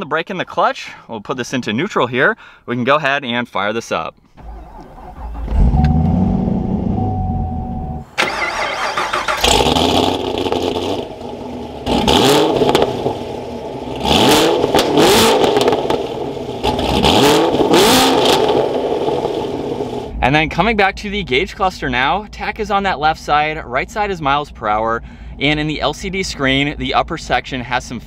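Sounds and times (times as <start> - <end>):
car engine starting and revving: 4.4 - 20.2.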